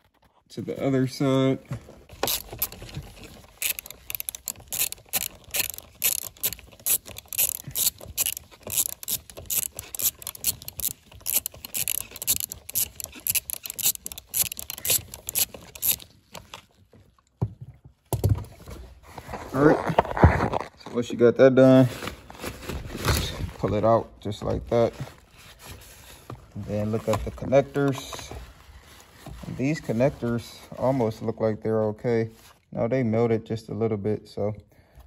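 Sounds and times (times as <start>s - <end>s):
hand ratchet clicking: 2.2s - 16.5s.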